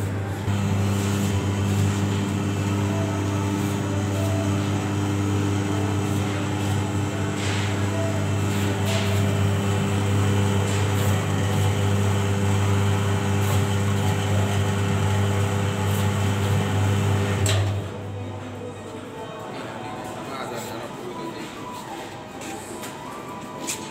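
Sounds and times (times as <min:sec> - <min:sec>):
machine motor humming: 0:00.0 - 0:18.4.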